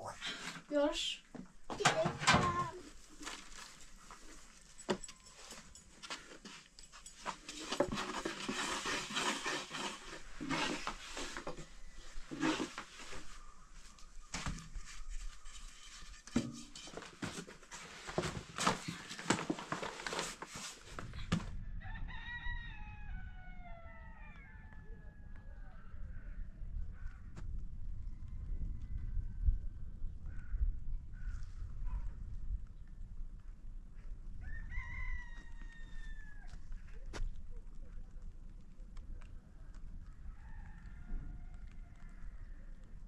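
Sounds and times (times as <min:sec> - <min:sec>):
rooster crowing: 0:21.7 - 0:25.9, 0:34.4 - 0:36.6, 0:40.2 - 0:42.4.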